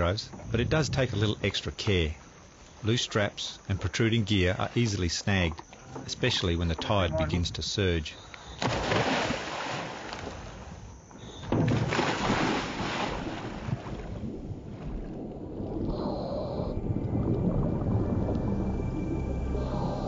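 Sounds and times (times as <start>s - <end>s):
water noise: 0.0s - 20.0s
exhaled bubbles rushing underwater: 13.1s - 20.0s
low sustained music tones: 16.7s - 20.0s.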